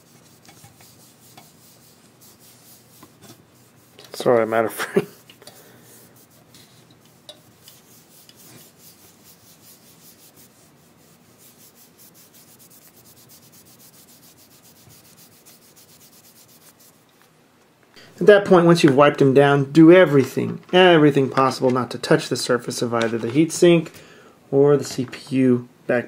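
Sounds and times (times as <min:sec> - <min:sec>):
cloth rubbing on metal: 0:00.0 - 0:17.1.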